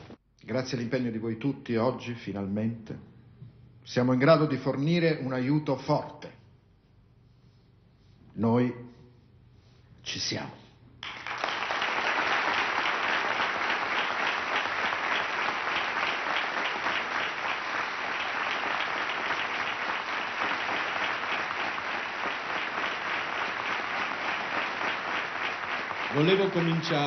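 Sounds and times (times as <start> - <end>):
audience applauding: 11.0 - 27.0.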